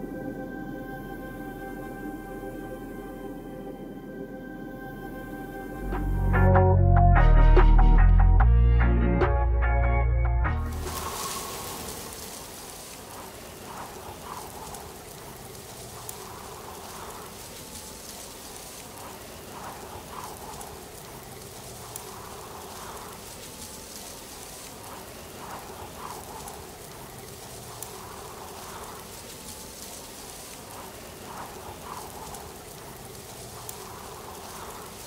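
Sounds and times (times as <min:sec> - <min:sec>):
rain patter and hiss: 0:00.0 - 0:03.1, 0:10.6 - 0:35.0.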